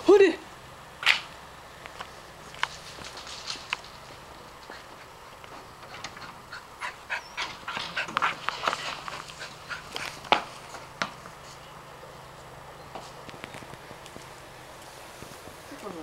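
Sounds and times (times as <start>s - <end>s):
paws scuffing on gravel: 2.4s - 5.7s, 7.9s - 11.8s
dog panting: 4.6s - 10.9s.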